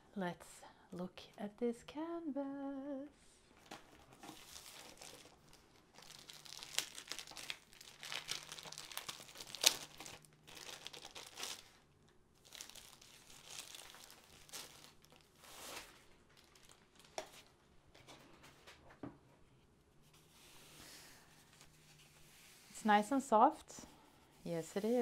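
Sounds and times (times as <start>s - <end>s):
plastic wrapping crinkling: 3.6s - 11.8s, 12.4s - 17.5s.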